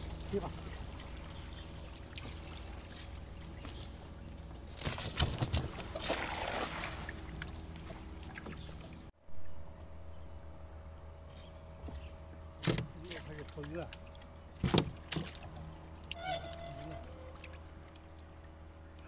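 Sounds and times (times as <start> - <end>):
net splashing into water: 4.7 - 8.9.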